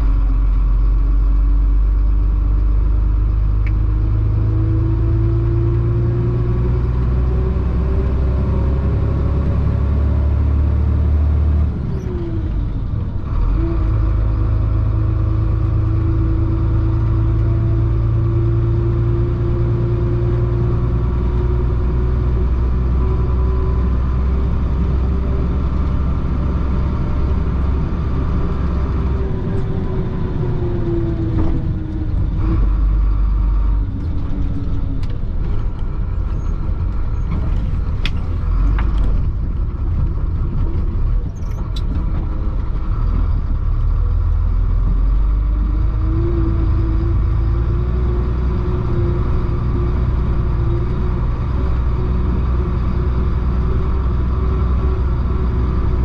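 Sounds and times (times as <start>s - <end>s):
diesel engine droning: 0.0s - 56.0s.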